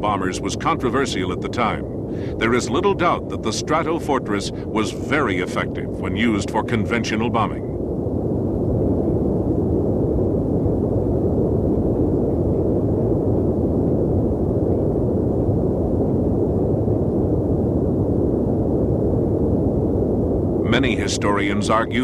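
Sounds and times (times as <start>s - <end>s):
rumble of explosions: 0.0s - 22.0s.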